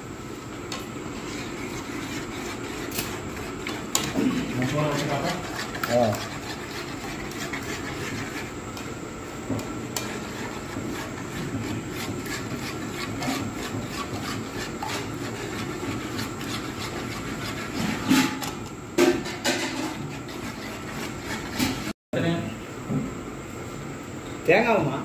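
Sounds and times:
metal spoon scraping pot: 1.2 - 8.5, 9.9 - 21.9.

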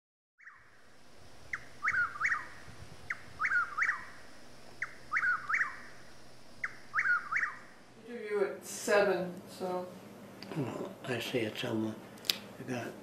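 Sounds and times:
faint steady hiss: 0.5 - 13.0
songbird three-note call: 1.5 - 7.8.

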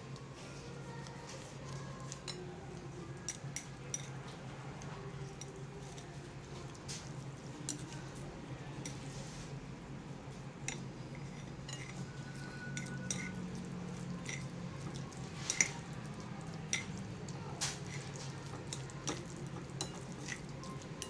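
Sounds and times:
wet squishing noodles: 11.8 - 21.0.

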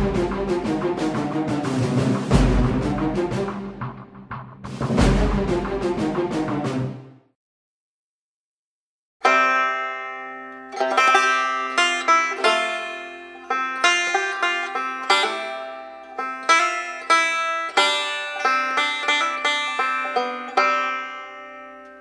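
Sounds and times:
plucked string instrument: 0.0 - 4.0, 9.2 - 22.0.

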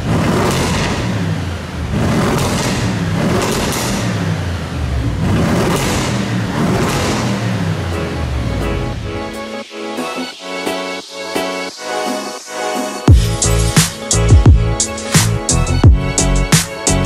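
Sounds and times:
car engine revving: 0.0 - 9.3.

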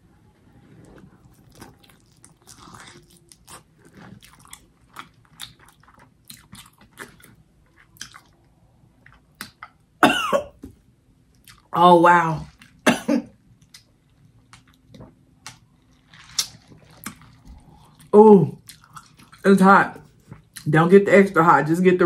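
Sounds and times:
person chewing with wet clicks: 1.2 - 10.0, 11.3 - 11.8, 13.5 - 19.4, 20.0 - 20.7.

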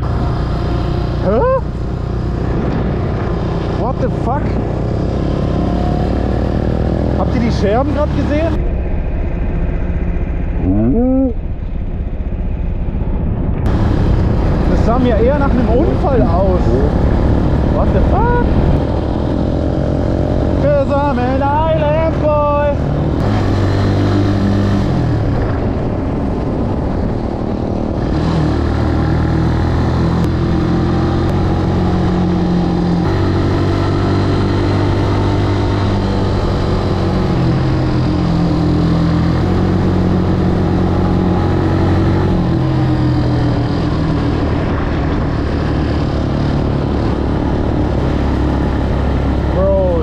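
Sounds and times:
motorcycle engine revving: 0.0 - 50.0.

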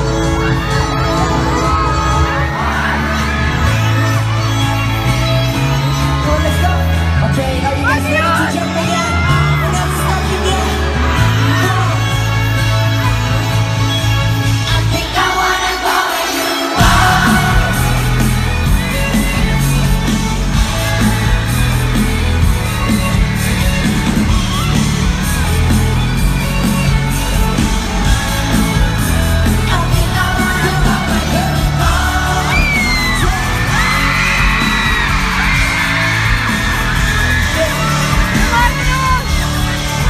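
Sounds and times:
fans yelling and whooping: 0.0 - 40.0
loud live pop music: 0.0 - 40.0
person singing: 14.6 - 21.4, 26.4 - 35.3.

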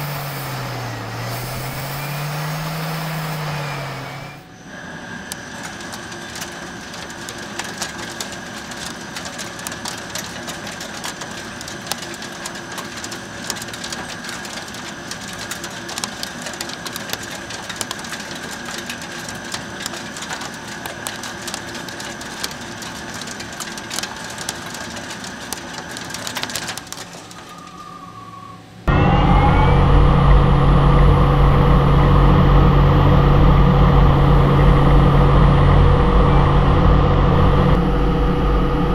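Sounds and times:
lathe machine whine: 0.0 - 6.0, 27.4 - 38.9
crackling metal cutting: 0.0 - 27.8.

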